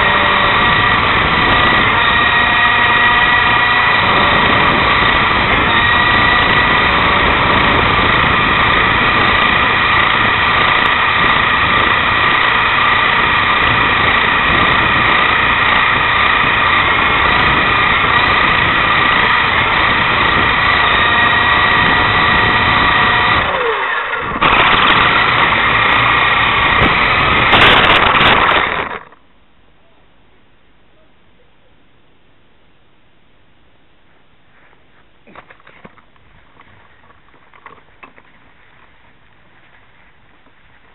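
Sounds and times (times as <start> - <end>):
rc helicopter motors whining: 0.0 - 29.2.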